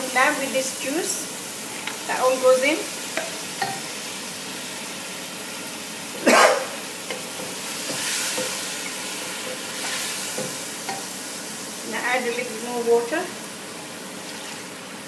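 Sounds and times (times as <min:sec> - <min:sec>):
meat sizzling in a pot: 0:00.0 - 0:15.0
wooden spoon stirring: 0:07.0 - 0:11.1.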